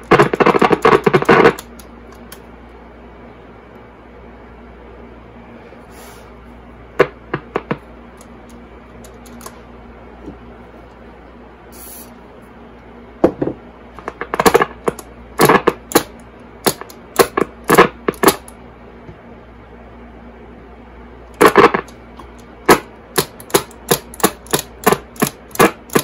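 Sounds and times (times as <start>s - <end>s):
radio crackles and clicks: 0.0s - 2.3s, 7.0s - 9.6s, 14.0s - 15.8s, 21.4s - 22.0s
radio hum and hiss: 0.0s - 16.0s, 16.6s - 22.8s.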